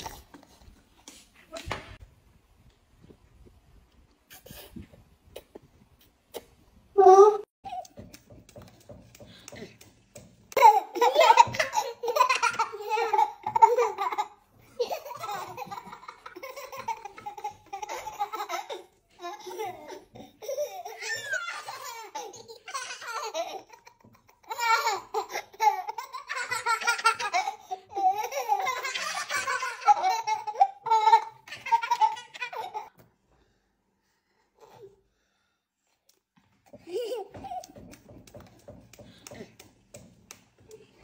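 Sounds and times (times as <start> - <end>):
toddlers laughing: 10.5 - 32.9.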